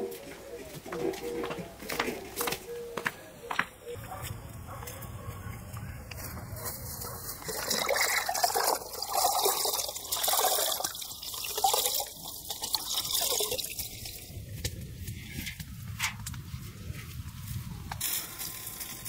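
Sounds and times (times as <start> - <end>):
water splashing into bucket: 7.4 - 14.2.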